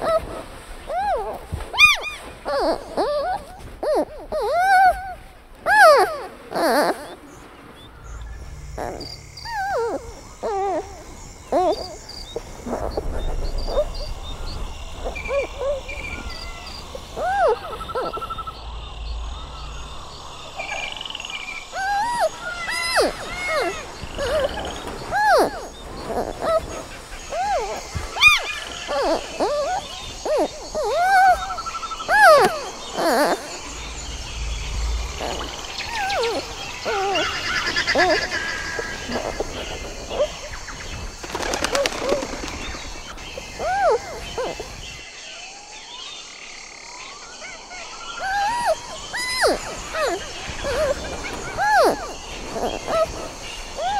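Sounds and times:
bird-like twittering: 0:05.7 - 0:45.2
low rumble: 0:12.6 - 0:21.8, 0:32.7 - 0:37.0.

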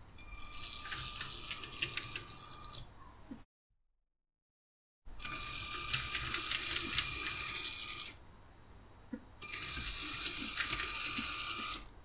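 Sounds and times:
toy train motor whining: 0:05.2 - 0:08.2, 0:09.4 - 0:11.9.

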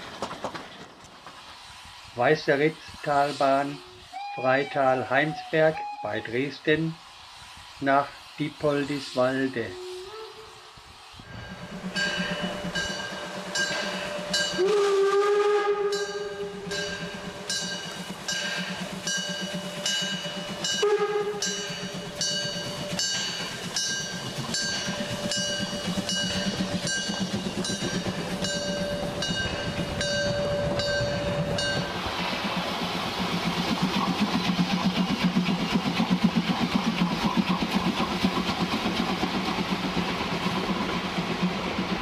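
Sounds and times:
steam locomotive chuffing: 0:00.0 - 0:42.0
steam whistle: 0:03.7 - 0:06.3, 0:09.6 - 0:10.7, 0:13.8 - 0:17.4, 0:20.6 - 0:23.1.

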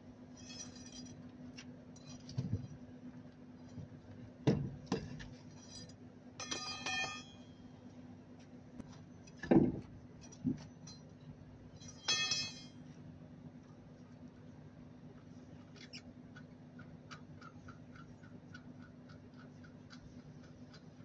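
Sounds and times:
steady low hum: 0:00.0 - 0:21.0
ringing metallic clinks: 0:11.8 - 0:12.8.

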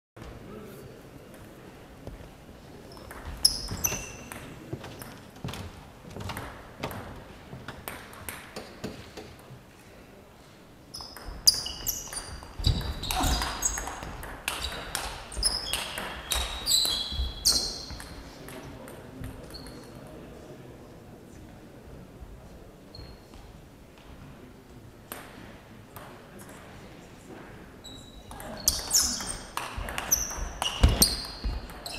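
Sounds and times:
shoes squeaking on floor: 0:02.9 - 0:06.3, 0:10.9 - 0:18.1, 0:22.9 - 0:23.3, 0:27.8 - 0:31.9.

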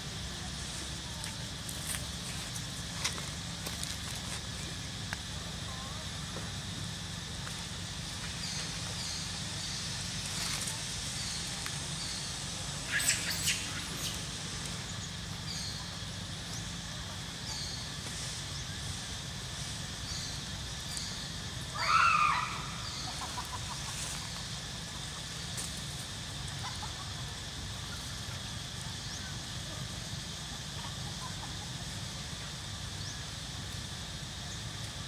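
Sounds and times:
steady low hum: 0:00.0 - 0:35.0
squealing animal call: 0:21.7 - 0:23.3.

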